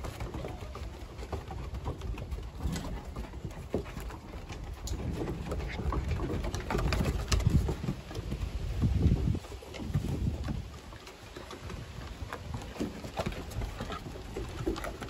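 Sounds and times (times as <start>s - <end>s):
puppies play-growling: 0.0s - 8.4s.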